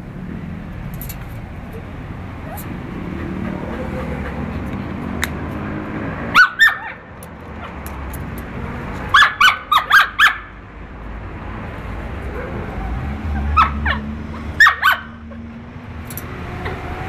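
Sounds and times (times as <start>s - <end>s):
dog yipping: 2.4s - 4.6s, 6.3s - 7.0s, 9.1s - 10.5s, 12.3s - 15.2s.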